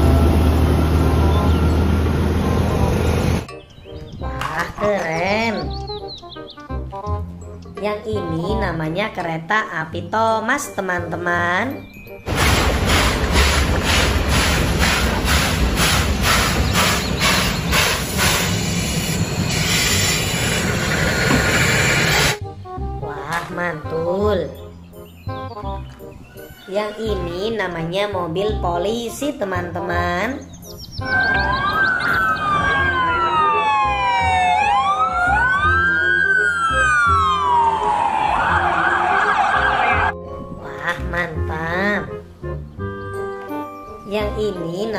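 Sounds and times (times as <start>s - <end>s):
background music with bass: 1.0s - 12.3s, 22.4s - 44.9s
steam hissing: 12.3s - 22.4s
steam locomotive chuffing: 12.3s - 22.4s
police siren wailing: 31.0s - 40.2s.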